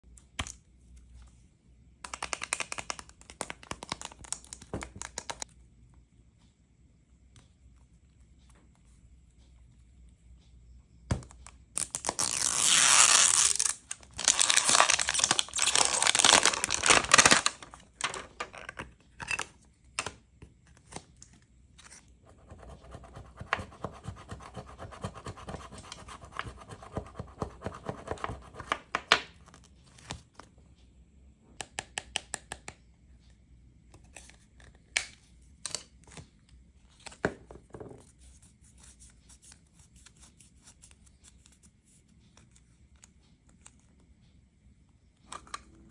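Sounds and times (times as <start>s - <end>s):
packaging ripping: 11.8s - 17.7s
card rustling and clicking: 13.1s - 18.5s.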